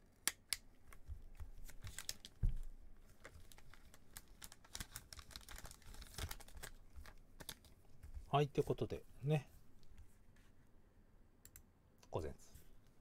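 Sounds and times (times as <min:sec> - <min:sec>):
plastic packaging crinkling: 0:01.7 - 0:07.8.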